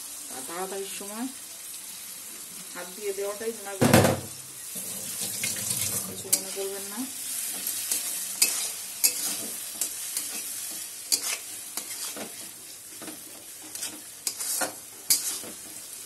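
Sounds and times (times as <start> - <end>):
frying sizzle: 0.0 - 16.0
spatula scraping metal pan: 6.2 - 6.8, 7.4 - 15.9.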